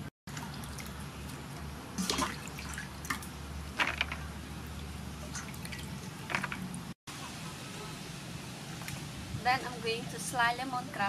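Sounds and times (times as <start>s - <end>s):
water splashing and dripping: 0.3s - 7.0s, 8.6s - 9.3s.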